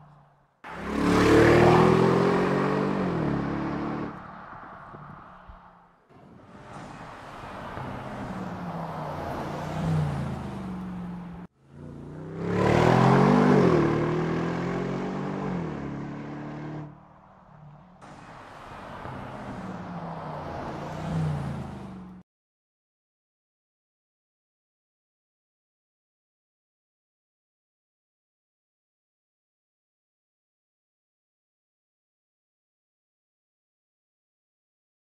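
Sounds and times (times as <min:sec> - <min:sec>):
car passing by: 0:00.7 - 0:11.5, 0:12.4 - 0:22.2.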